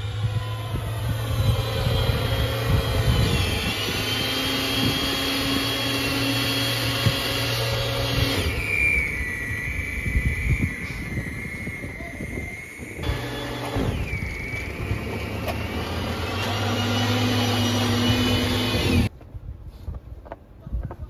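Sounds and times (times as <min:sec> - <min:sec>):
electric snow blower whining: 0:00.0 - 0:19.1.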